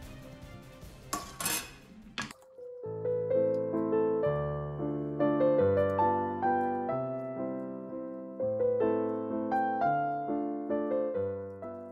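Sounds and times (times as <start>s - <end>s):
slow piano melody: 2.3s - 11.9s.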